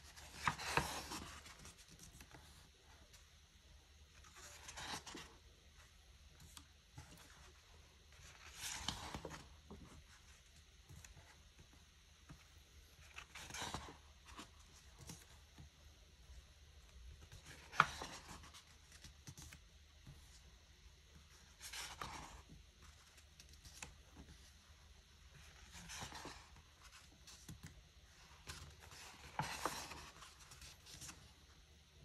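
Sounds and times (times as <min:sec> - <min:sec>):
book pages turning: 0:00.0 - 0:03.3, 0:04.1 - 0:15.8, 0:16.9 - 0:20.5, 0:21.1 - 0:31.6.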